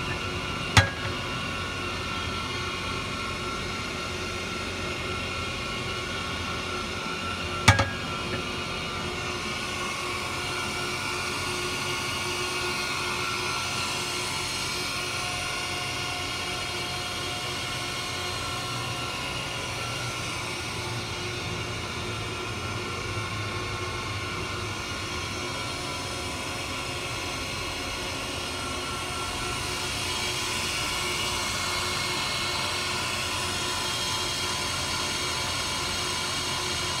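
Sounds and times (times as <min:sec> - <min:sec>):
motor hum: 0:00.0 - 0:05.0, 0:05.7 - 0:10.9
grinder whine: 0:00.0 - 0:24.5.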